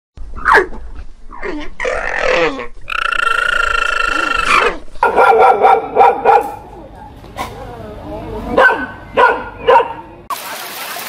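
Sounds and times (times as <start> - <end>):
dog barking loudly: 5.0 - 6.7, 8.6 - 10.1.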